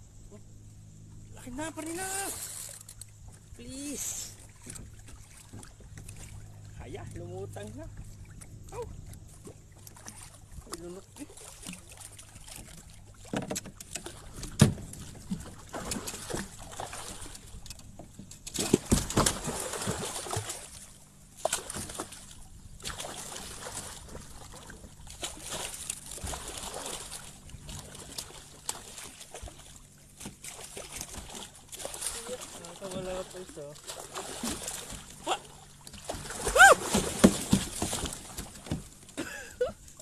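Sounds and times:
water sloshing against kayak: 0.0 - 40.0
knocks on kayak hull: 13.3 - 15.4, 36.9 - 38.9.

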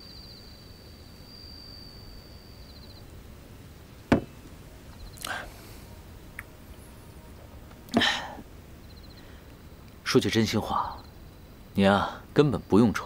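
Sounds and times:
glass set down on table: 4.1 - 4.4.

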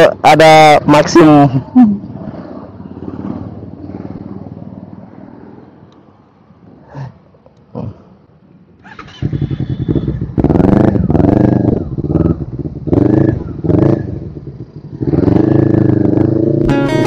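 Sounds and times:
motorcycle engine revving: 2.0 - 4.9, 8.8 - 17.0.

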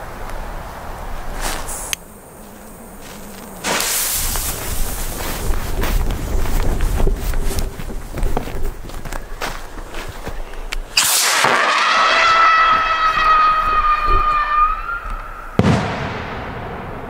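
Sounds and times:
whistling firework: 3.6 - 5.1, 11.0 - 17.0
firework bang: 11.0 - 17.0.

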